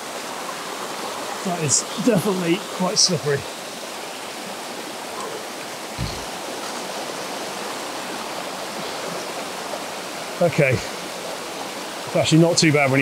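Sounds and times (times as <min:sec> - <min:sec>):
river water rushing over rocks: 0:00.0 - 0:13.0
dull low thump: 0:06.0 - 0:06.4.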